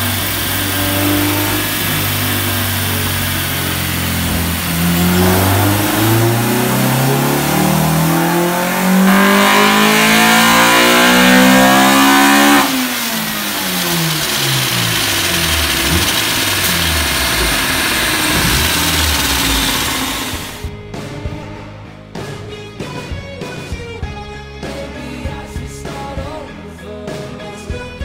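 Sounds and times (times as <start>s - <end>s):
car engine revving at full throttle: 0.0s - 20.7s.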